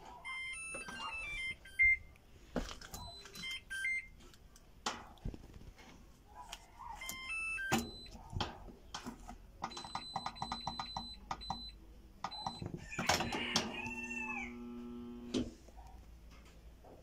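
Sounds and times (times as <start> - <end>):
electronic beep melody: 0.2 - 2.1, 7.0 - 8.1
selector knob clicks and beeps: 7.0 - 8.2, 9.6 - 14.0
rooster crowing: 12.8 - 15.2.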